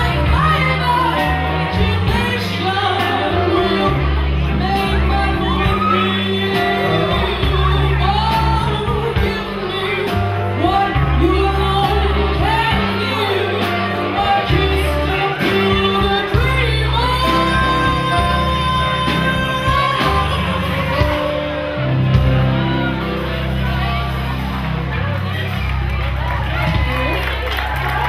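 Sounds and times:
woman singing into a microphone: 0:00.0 - 0:21.6
band playing bass and drums: 0:00.0 - 0:28.0.

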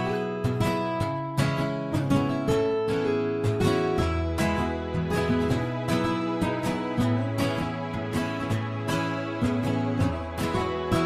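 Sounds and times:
plucked guitar instrumental music: 0:00.0 - 0:11.0.

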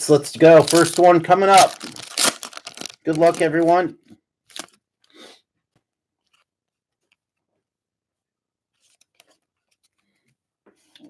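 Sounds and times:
card packaging rustling: 0:00.4 - 0:03.9, 0:04.5 - 0:04.8.

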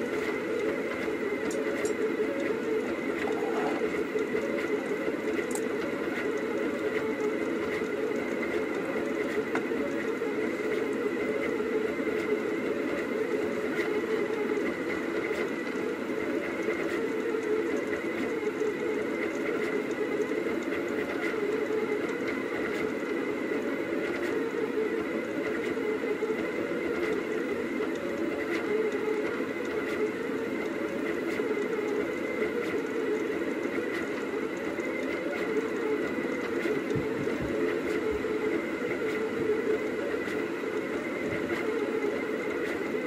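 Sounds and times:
stepper motors whirring: 0:00.0 - 0:05.6.

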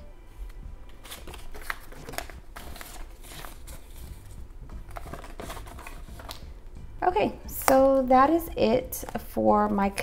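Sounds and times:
paper banknotes rustling: 0:01.0 - 0:04.3, 0:04.9 - 0:06.4.

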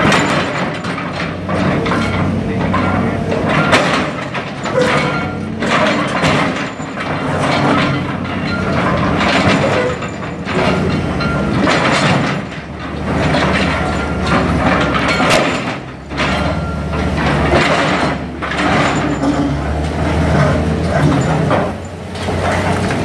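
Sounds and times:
diesel engine hum: 0:00.0 - 0:23.0.

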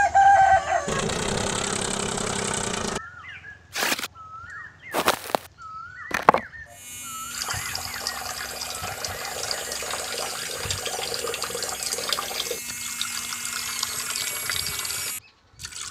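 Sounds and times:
faint motor hum: 0:00.0 - 0:03.0, 0:06.1 - 0:15.2
water pouring and splashing: 0:07.3 - 0:15.9.

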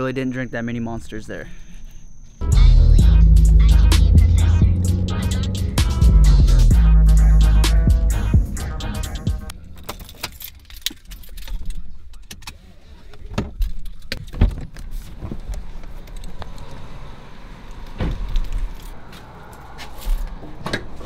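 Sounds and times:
keys jangling: 0:09.6 - 0:12.5.

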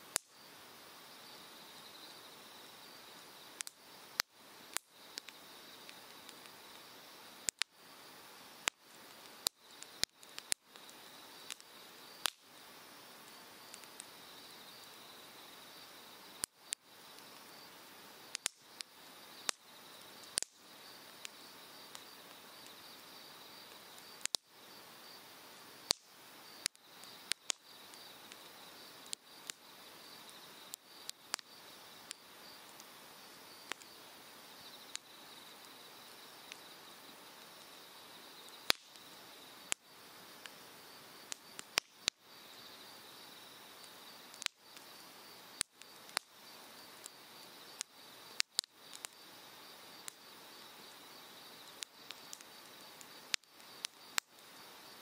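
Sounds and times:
firewood popping and crackling: 0:03.5 - 0:14.2, 0:16.4 - 0:22.8, 0:23.6 - 0:24.6, 0:25.5 - 0:34.0, 0:38.5 - 0:39.8, 0:41.2 - 0:42.3, 0:43.8 - 0:50.2, 0:51.6 - 0:55.0.

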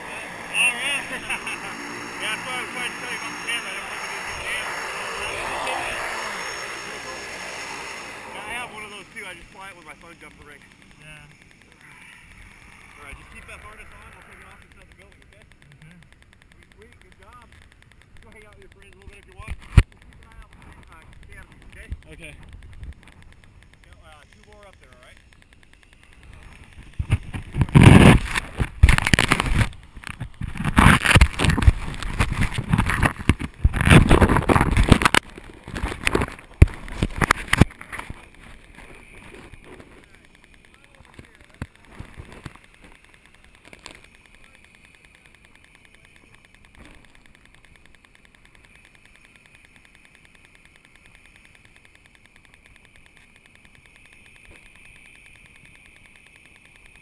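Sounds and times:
rapid pulsing high buzz: 0:00.0 - 0:57.0
wind rumble on microphone: 0:26.2 - 0:38.2.

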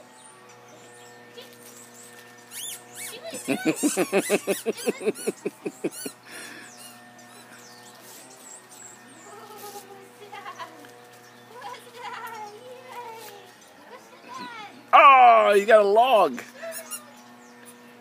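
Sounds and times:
squeaky toy squeaking: 0:02.5 - 0:06.2, 0:16.7 - 0:17.1.

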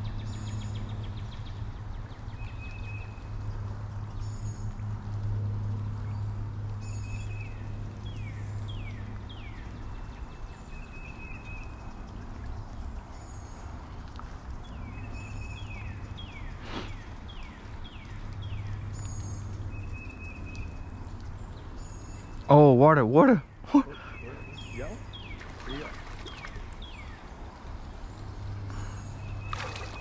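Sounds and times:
birds whistling and chirping: 0:23.4 - 0:27.2.

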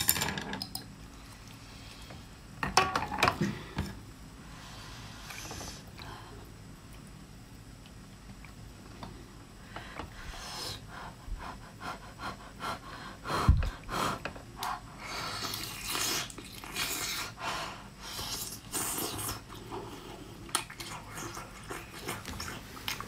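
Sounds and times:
wet sucking and slurping: 0:15.0 - 0:17.4, 0:18.0 - 0:23.0
chewing: 0:18.8 - 0:23.0.

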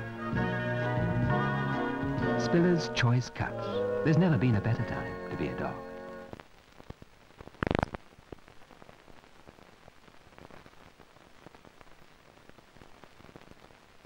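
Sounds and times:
film soundtrack crackle and hiss: 0:00.0 - 0:14.0
clicks and pops: 0:06.3 - 0:08.5.

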